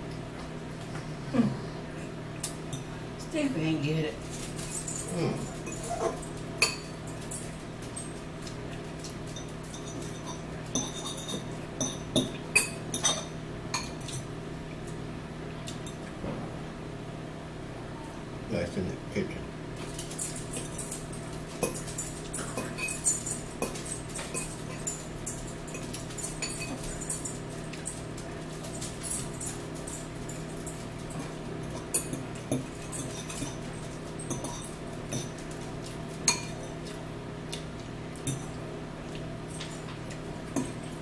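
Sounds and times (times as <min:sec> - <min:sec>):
steady low hum: 0:00.0 - 0:41.0
metal forks clinking on bowls: 0:02.4 - 0:03.0, 0:04.2 - 0:14.3, 0:19.8 - 0:37.0, 0:38.2 - 0:38.6, 0:39.4 - 0:41.0.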